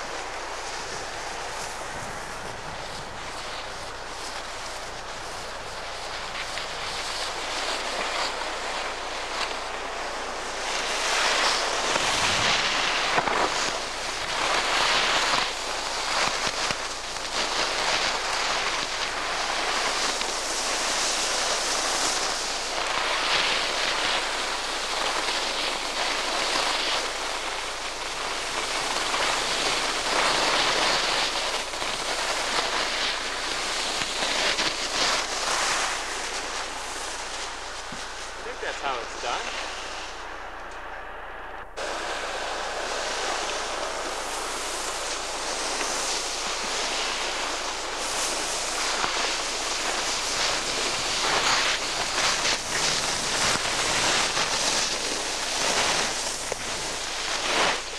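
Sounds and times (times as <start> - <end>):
wind rushing past microphone: 0.0 - 5.7
skis scraping on packed snow: 0.0 - 41.1, 41.7 - 57.9.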